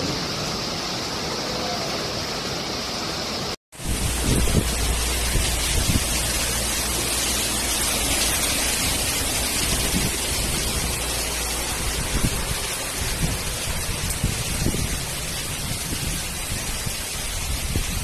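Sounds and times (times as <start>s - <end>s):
heavy rain pouring: 0.0s - 18.0s
low rumble: 3.8s - 18.0s.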